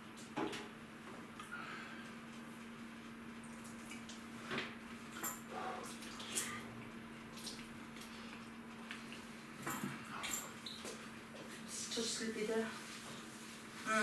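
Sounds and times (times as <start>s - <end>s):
water sloshing and dripping: 5.8s - 9.4s.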